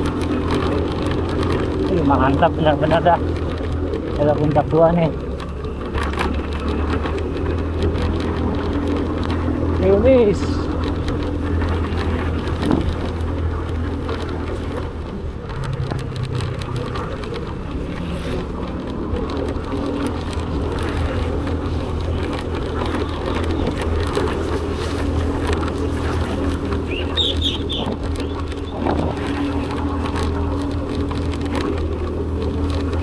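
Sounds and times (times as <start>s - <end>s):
motorcycle engine running: 0.0s - 33.0s
wind on microphone: 7.6s - 33.0s.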